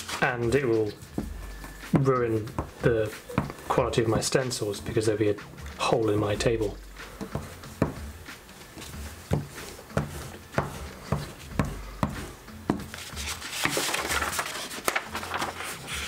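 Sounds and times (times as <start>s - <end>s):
paper rustling: 0.0s - 1.8s, 8.8s - 16.0s.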